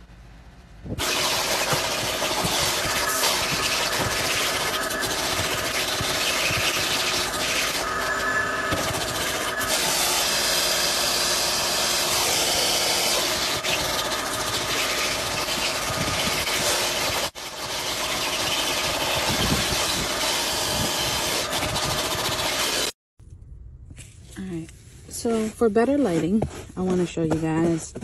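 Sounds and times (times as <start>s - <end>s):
vacuum cleaner running: 1.0s - 22.9s.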